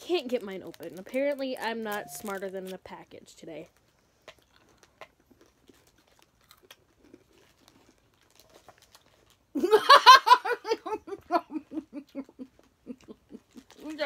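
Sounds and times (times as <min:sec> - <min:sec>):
woman laughing: 0:09.6 - 0:13.8.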